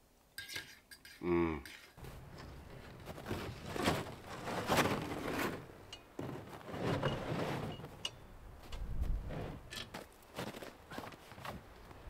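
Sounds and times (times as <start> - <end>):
plastic sled knocking and scraping: 2.0 - 11.6.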